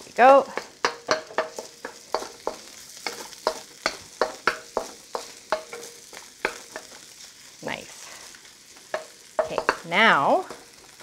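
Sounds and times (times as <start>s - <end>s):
shallots sizzling in oil: 0.0s - 11.0s
wok ringing: 0.4s - 7.0s, 8.9s - 10.6s
spatula scraping a wok: 0.4s - 11.0s.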